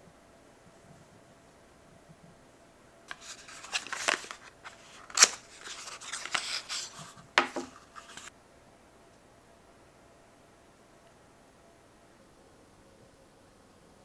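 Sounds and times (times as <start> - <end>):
cardboard and paper rustling: 3.1 - 8.3.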